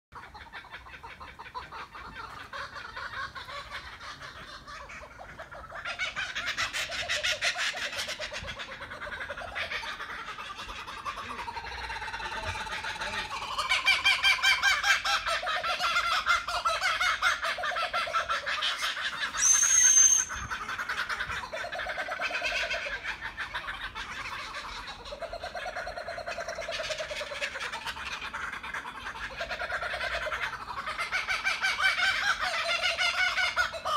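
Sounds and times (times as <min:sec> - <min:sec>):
kookaburras laughing: 0:00.2 - 0:33.9
sharp high whistle: 0:19.4 - 0:20.3.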